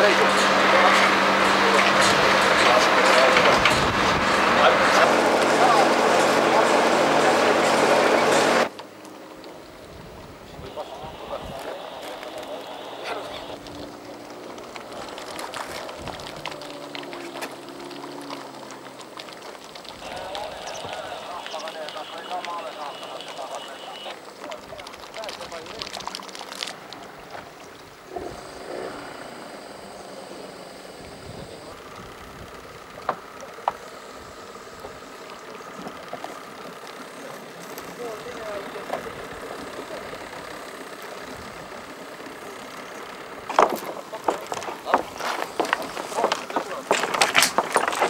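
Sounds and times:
boat motor running: 0.0s - 48.0s
faint clicks: 11.4s - 48.0s.

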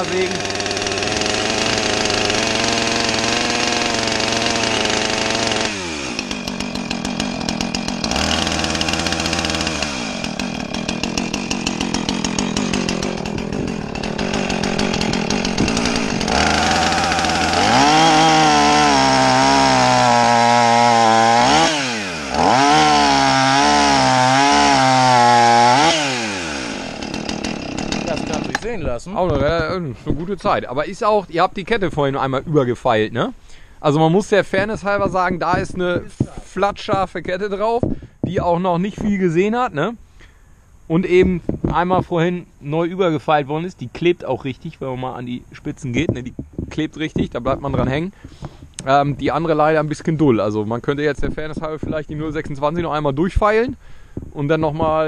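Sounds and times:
chainsaw cutting log: 0.0s - 30.3s, 34.1s - 39.3s, 46.0s - 49.0s.

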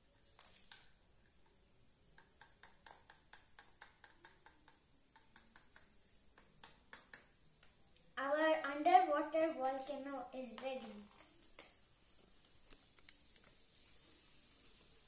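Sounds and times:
plastic spatula clicking on glass tube: 2.2s - 7.7s.

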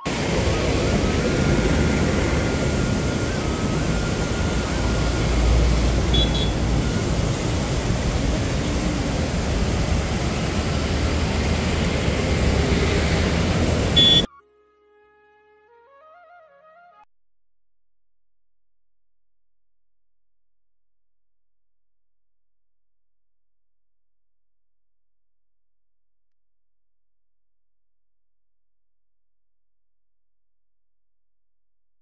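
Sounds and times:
traffic rumble: 0.0s - 14.3s
wind: 0.0s - 14.3s
soft flute music: 14.0s - 17.1s.

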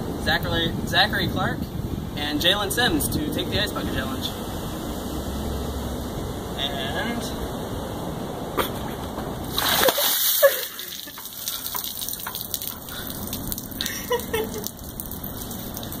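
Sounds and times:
water splashing onto paving: 9.4s - 16.0s
water dripping on ground: 9.6s - 16.0s.

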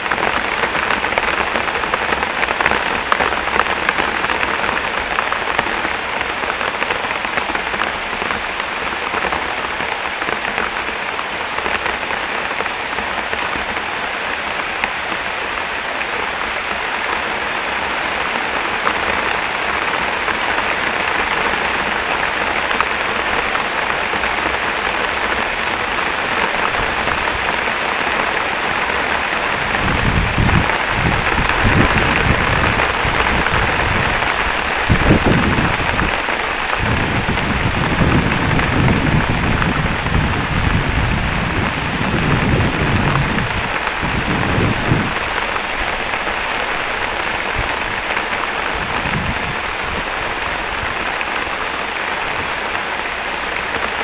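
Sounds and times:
heavy rain pouring: 0.0s - 54.0s
rolling thunder: 29.6s - 45.3s.

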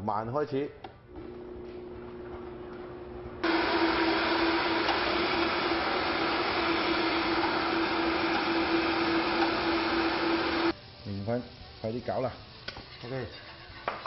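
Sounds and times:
blender motor running: 3.4s - 10.8s.

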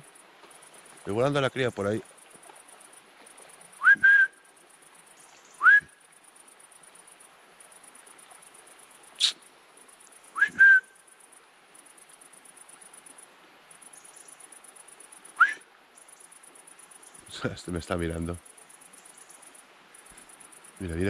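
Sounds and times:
crickets chirring: 0.0s - 21.0s
deer whistled calls: 3.8s - 4.5s, 5.6s - 6.0s, 9.2s - 9.4s, 10.3s - 11.0s, 15.4s - 15.7s.

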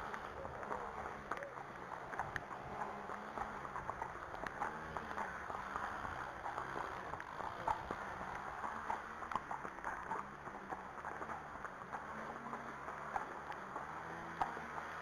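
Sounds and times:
hooves clip-clopping on tarmac: 0.0s - 15.0s.

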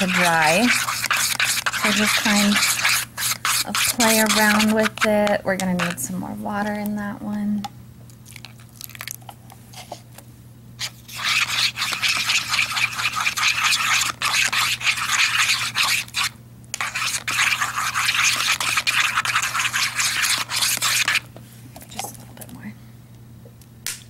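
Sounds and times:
plastic spoon scraping a bowl: 0.0s - 6.0s, 10.8s - 21.3s.

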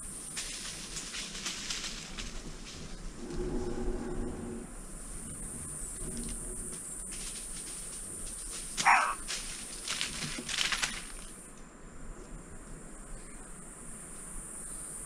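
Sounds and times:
crackles in dry leaf litter: 0.0s - 3.6s, 5.0s - 11.6s
insects droning: 0.0s - 15.0s.

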